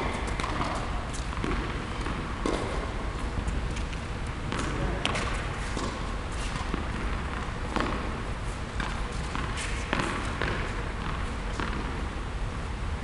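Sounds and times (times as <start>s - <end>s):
tennis ball knocks: 1.4s - 2.9s.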